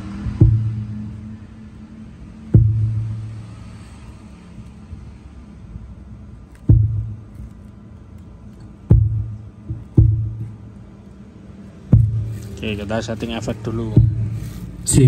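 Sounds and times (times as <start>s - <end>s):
deep booms of microphone knocks: 0.2s - 1.3s, 2.5s - 3.4s, 6.6s - 7.5s, 8.8s - 10.8s, 11.9s - 12.5s, 13.7s - 14.5s.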